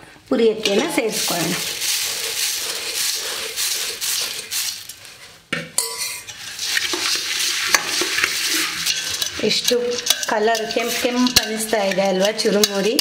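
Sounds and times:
spoon stirring puffed rice: 0:00.6 - 0:13.0
puffed rice poured into metal bowl: 0:01.0 - 0:05.2, 0:06.3 - 0:13.0
metal spoon clinking on bowl: 0:05.8 - 0:06.3, 0:08.8 - 0:13.0.

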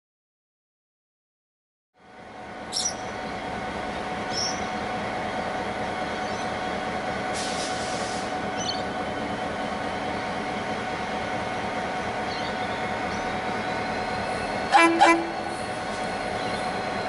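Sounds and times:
locomotives idling: 0:02.0 - 0:17.0
brief hiss: 0:07.4 - 0:08.3.

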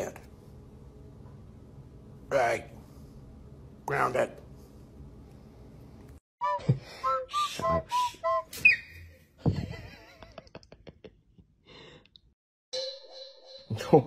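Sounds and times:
whistled notes with upward slide: 0:06.4 - 0:09.2.

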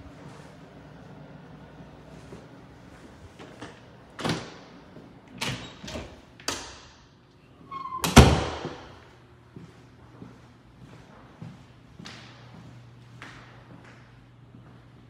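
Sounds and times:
door squeak: 0:07.6 - 0:08.5.

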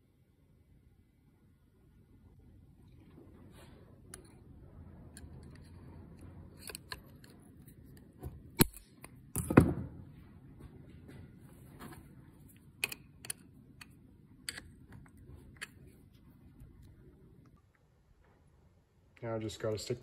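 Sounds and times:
metal pliers clicking and tapping: 0:12.8 - 0:14.7.

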